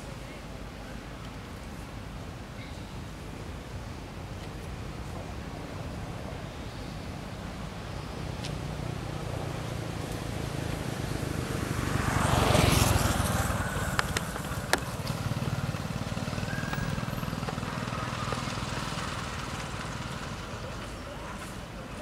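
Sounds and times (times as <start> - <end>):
vehicle passing: 8.2 - 21.5.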